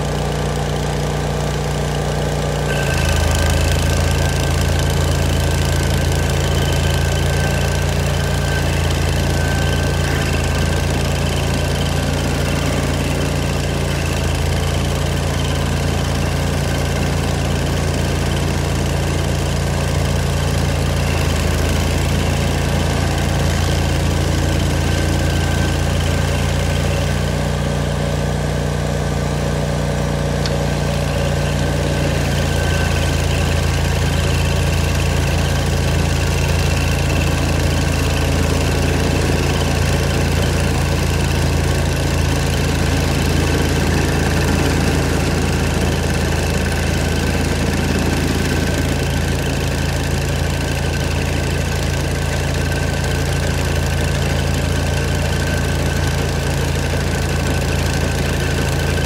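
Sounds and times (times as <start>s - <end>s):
stump grinder engine running: 0.0s - 59.0s.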